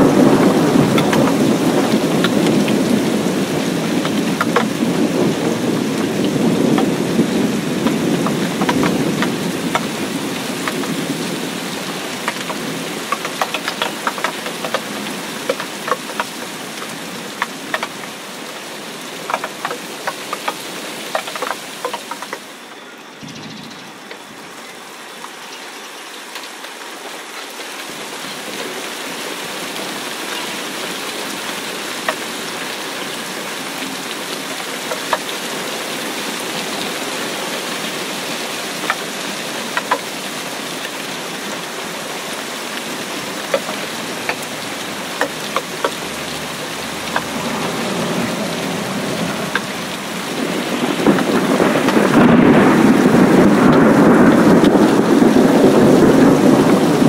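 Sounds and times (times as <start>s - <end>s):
rain on puddle and grass: 0.0s - 57.0s.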